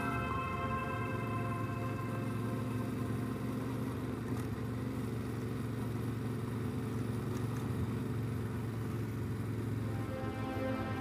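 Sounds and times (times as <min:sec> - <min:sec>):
rushing noise: 0:00.0 - 0:04.2, 0:09.7 - 0:11.0
motorcycle engine running: 0:00.0 - 0:10.1.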